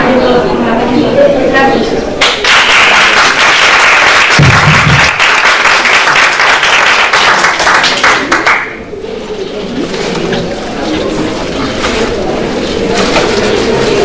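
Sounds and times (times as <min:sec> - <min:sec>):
audience applause: 0:02.2 - 0:08.8.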